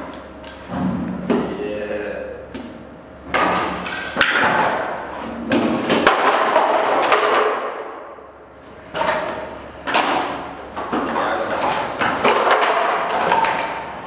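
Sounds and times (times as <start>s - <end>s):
panels crashing onto concrete: 5.5s - 7.8s, 10.9s - 13.8s.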